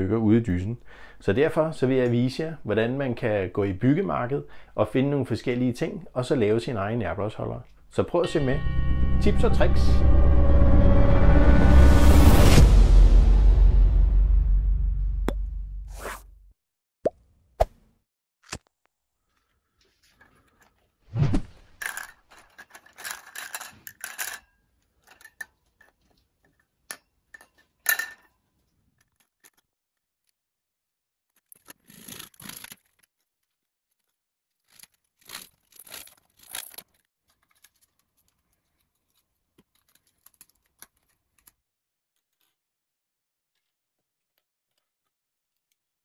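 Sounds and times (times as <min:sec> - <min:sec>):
plastic fittings clattering: 0:21.7 - 0:24.4.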